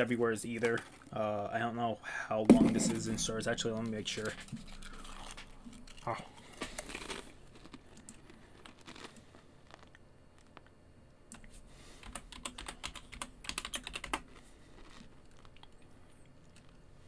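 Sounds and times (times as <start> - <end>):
computer keyboard typing: 12.0 - 14.2.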